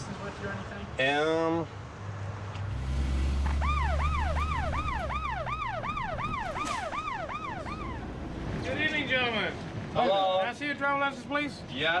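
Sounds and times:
low engine rumble: 0:02.5 - 0:10.0
police siren yelping: 0:03.4 - 0:08.2.

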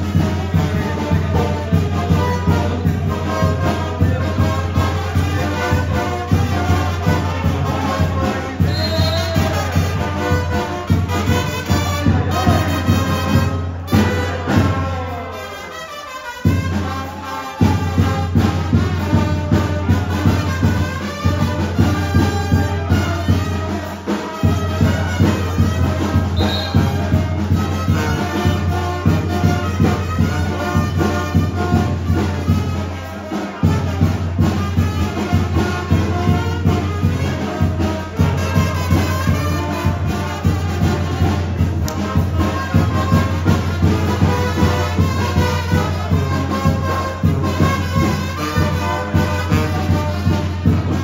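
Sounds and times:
brass music: 0:00.0 - 0:51.0.

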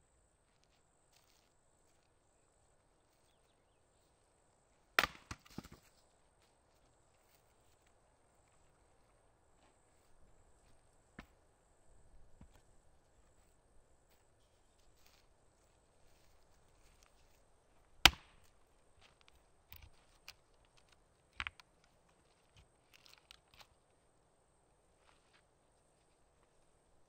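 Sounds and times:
axe chopping log: 0:05.0 - 0:05.8, 0:18.0 - 0:18.4.

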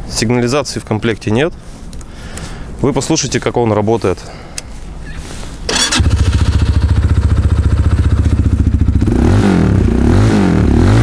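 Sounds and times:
motorcycle engine starting and idling: 0:05.7 - 0:10.8
engine revving: 0:05.7 - 0:11.0.

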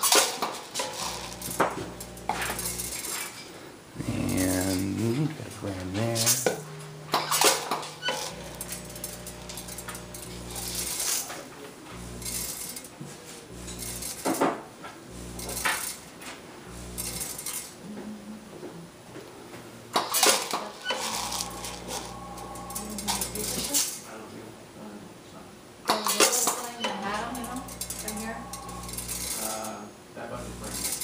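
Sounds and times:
feed pan humming: 0:00.8 - 0:03.2, 0:04.0 - 0:11.1, 0:11.9 - 0:12.8, 0:13.5 - 0:14.3, 0:15.1 - 0:15.9, 0:16.6 - 0:17.4, 0:21.0 - 0:23.6, 0:27.0 - 0:29.4.

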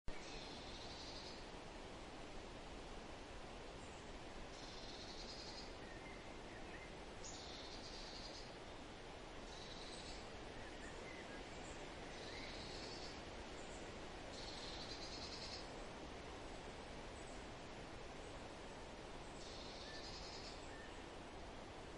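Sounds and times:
faint bird chirps: 0:00.1 - 0:01.5, 0:03.8 - 0:15.8, 0:19.2 - 0:21.1
steady background hiss: 0:00.1 - 0:21.9.

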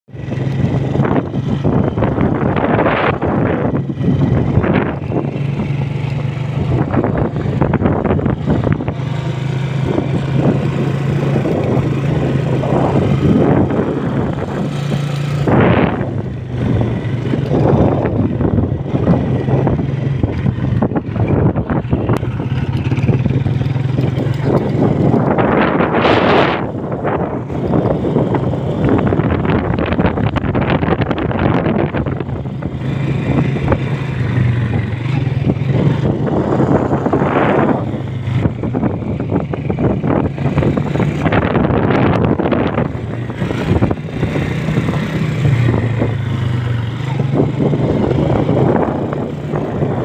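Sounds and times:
vehicle engine humming: 0:00.1 - 0:50.0
wind buffeting microphone: 0:00.1 - 0:50.0.

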